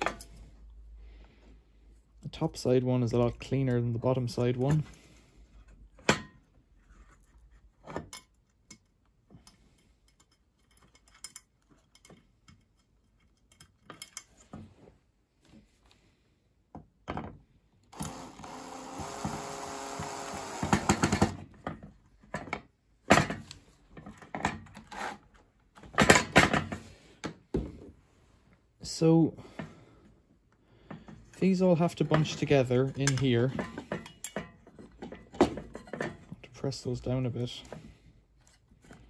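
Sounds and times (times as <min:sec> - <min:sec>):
tools clicking and tapping on metal: 0:07.9 - 0:14.6, 0:31.9 - 0:36.4.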